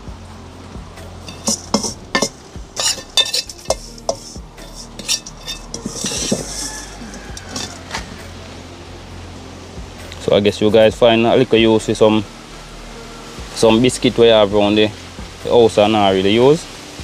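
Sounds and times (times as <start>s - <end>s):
metal spoon scraping a frying pan: 1.2s - 8.0s.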